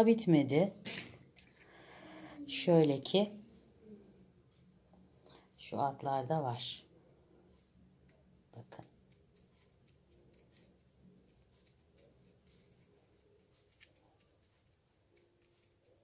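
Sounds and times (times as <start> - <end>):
sponge dabbing paint: 7.6 - 16.0.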